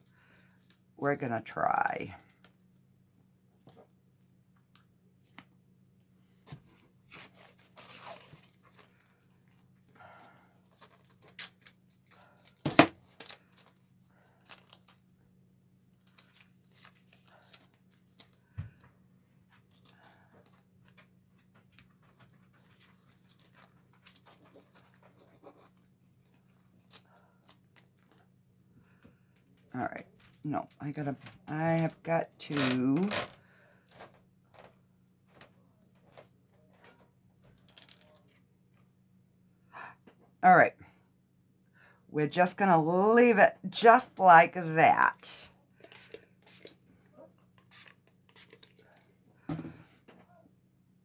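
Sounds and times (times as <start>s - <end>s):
tape pulled and torn: 6.4s - 9.3s.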